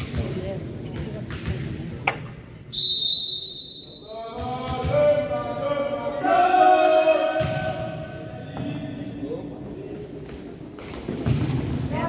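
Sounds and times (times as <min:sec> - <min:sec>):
referee's whistle blast: 0:02.7 - 0:04.2.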